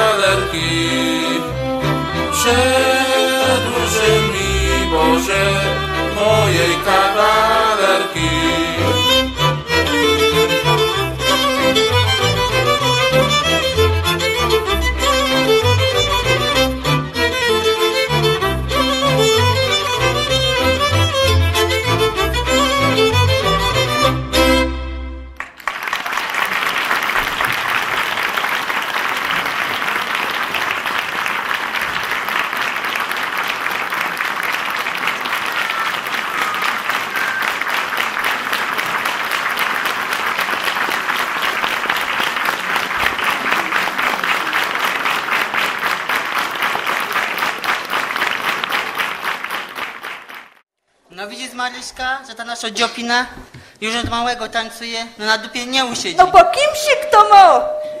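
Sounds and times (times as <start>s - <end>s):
fiddle tune: 0.0s - 25.4s
audience applauding: 25.4s - 50.6s.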